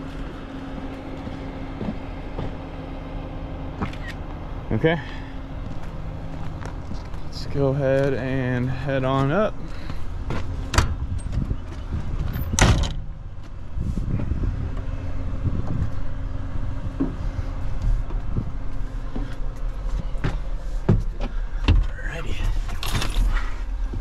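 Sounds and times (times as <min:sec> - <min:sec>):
engine idling: 0:00.0 - 0:24.0
knocks and clunks in cab: 0:09.9 - 0:13.5, 0:16.8 - 0:24.0.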